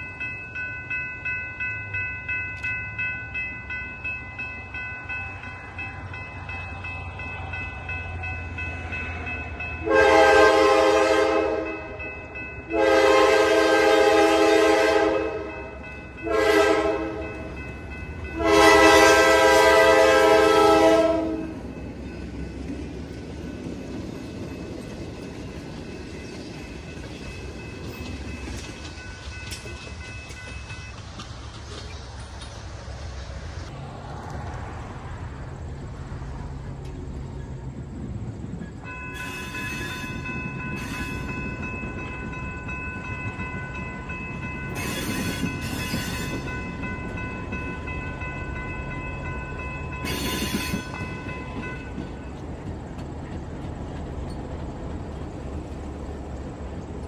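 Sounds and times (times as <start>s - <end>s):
crossing bell ringing: 0.0s - 31.3s, 38.5s - 53.6s
train rumbling past: 0.0s - 57.0s
locomotive air horn blasts: 9.8s - 12.0s, 12.7s - 15.6s, 16.2s - 17.4s, 18.4s - 21.6s.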